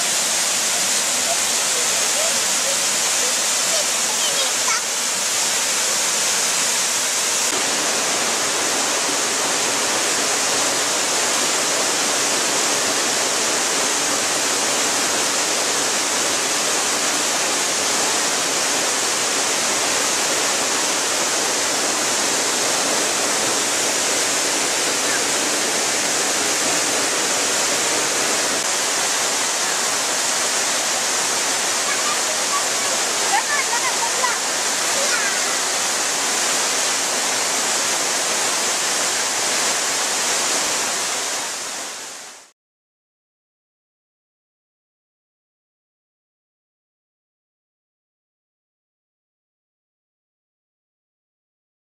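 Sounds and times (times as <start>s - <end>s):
waterfall rushing: 0.0s - 42.5s.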